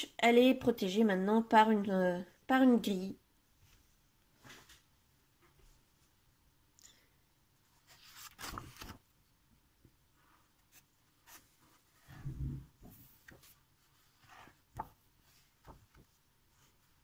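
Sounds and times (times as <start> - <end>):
paper pages rustling: 7.7 - 9.2, 10.6 - 12.2, 12.8 - 17.0
light paper ticks and brushes: 9.8 - 12.2, 12.8 - 17.0.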